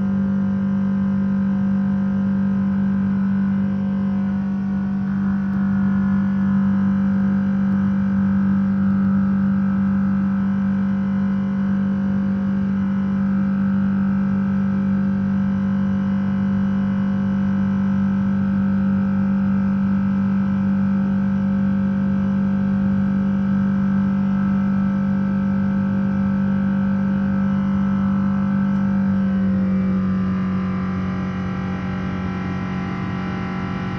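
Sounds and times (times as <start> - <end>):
jet engines droning in cabin: 22.8 - 33.9.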